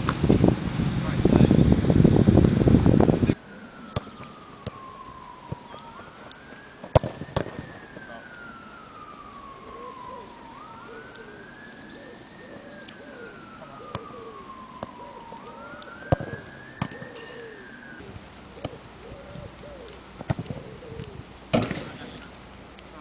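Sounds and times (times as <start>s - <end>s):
emergency siren wailing: 0.0s - 22.3s
football being kicked: 6.8s - 7.6s, 16.1s - 17.0s, 20.2s - 20.5s.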